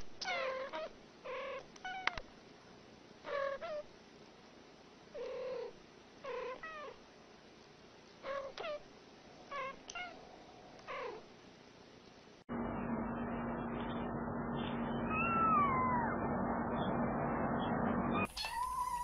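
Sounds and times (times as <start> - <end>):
cats meowing and chirping: 14.9 - 19.0.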